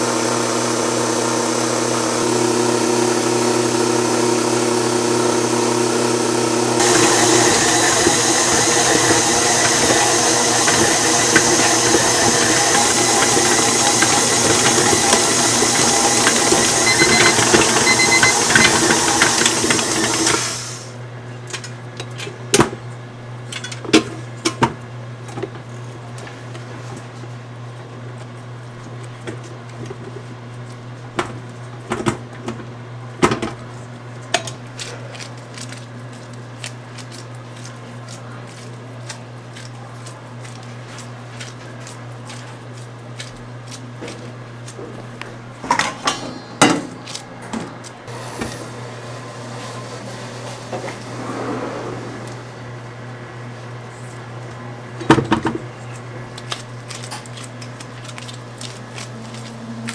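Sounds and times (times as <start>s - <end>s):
stand mixer motors whirring: 0.0s - 21.0s, 48.1s - 53.6s.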